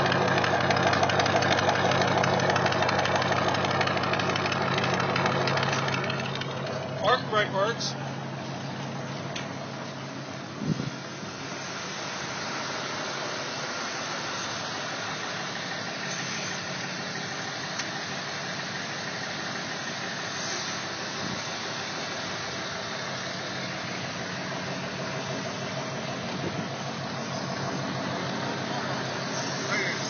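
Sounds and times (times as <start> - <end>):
motor idling: 0.0 - 30.0.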